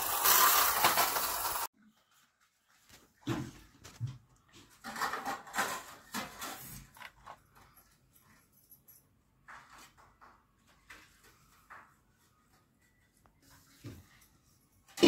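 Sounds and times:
plastic spinning toy rattling: 0.0s - 1.7s.

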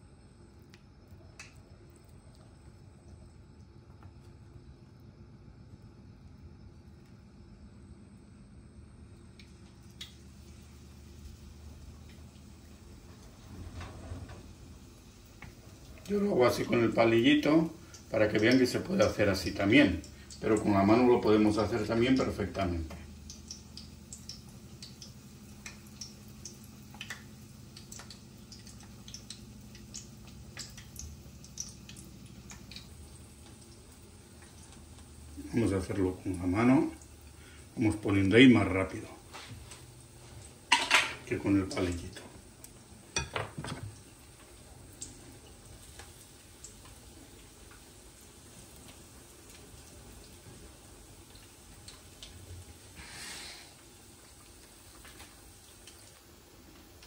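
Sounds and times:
food frying in hot oil: 0.0s - 57.0s
low steady hum: 0.0s - 57.0s
small crackles: 0.4s - 7.5s, 9.1s - 16.2s, 22.9s - 35.6s, 43.9s - 57.0s.

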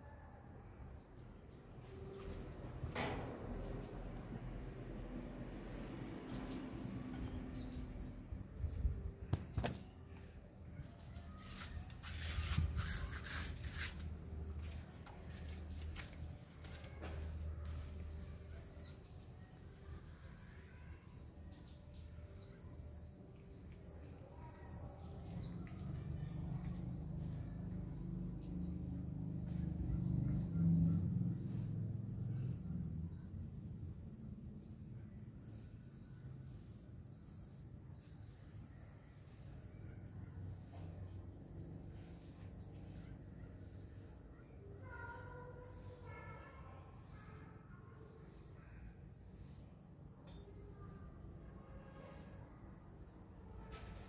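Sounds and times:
low outdoor rumble: 1.4s - 11.0s
small birds chirping: 6.1s - 34.3s.

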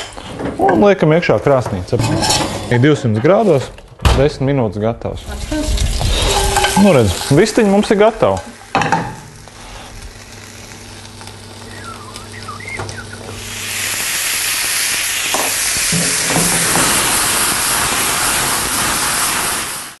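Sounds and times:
food sizzling in a pan: 5.3s - 20.0s.

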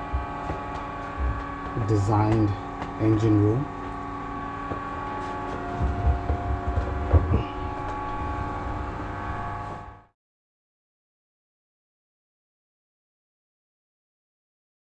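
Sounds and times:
low thuds: 0.0s - 3.0s, 4.6s - 9.6s
engine room machinery hum: 0.0s - 10.1s.

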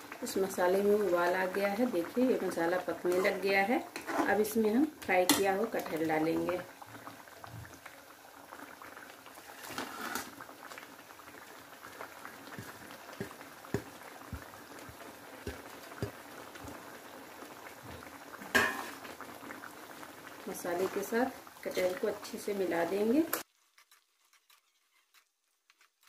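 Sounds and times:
thick gravy boiling and popping: 0.0s - 26.0s
scrape in pan: 4.0s - 4.4s, 9.4s - 10.4s.

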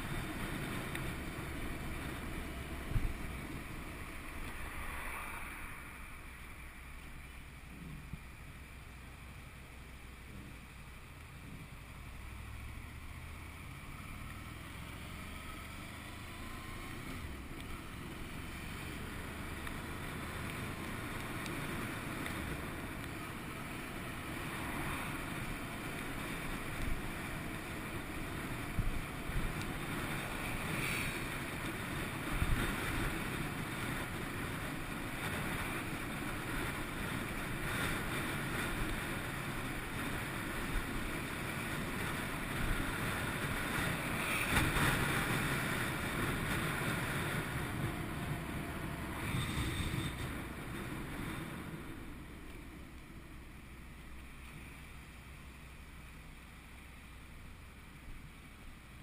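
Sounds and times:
wind rush on helmet: 0.0s - 8.8s, 16.5s - 54.4s
road noise: 0.0s - 59.0s.

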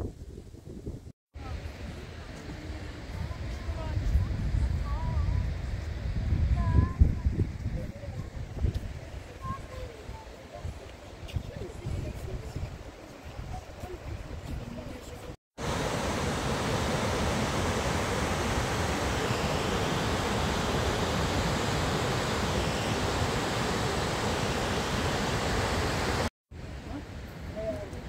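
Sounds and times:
waterfall rushing: 15.6s - 26.3s.

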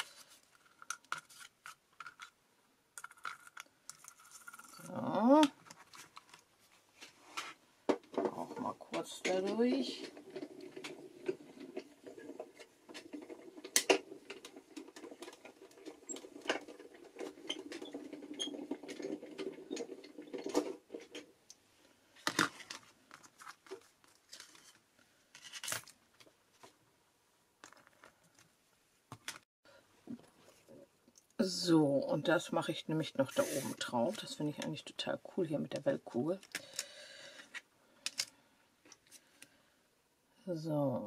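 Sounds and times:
paper rustling: 22.2s - 26.7s.

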